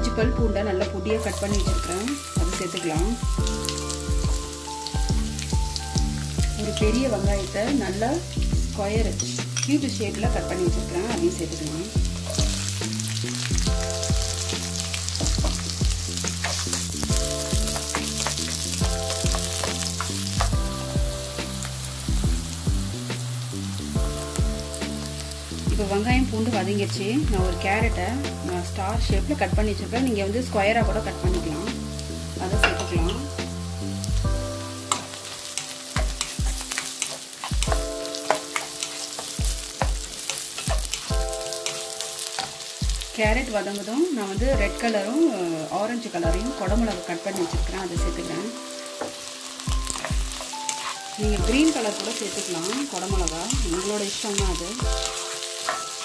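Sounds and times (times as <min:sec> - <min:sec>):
background music with steady beat: 0:00.0 - 0:56.0
onion and garlic sizzling in oil: 0:00.0 - 0:56.0
spatula stirring in wok: 0:11.9 - 0:22.6, 0:34.3 - 0:43.2, 0:48.8 - 0:56.0.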